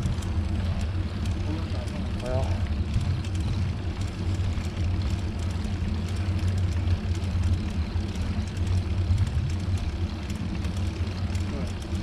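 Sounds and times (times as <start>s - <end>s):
wind buffeting microphone: 0.0s - 10.6s.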